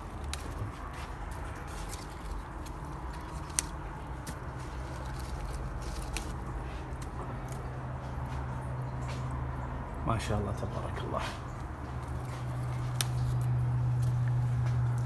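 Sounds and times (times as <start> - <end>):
handling rustles: 0.0 - 8.6
low mechanical hum: 0.0 - 15.0.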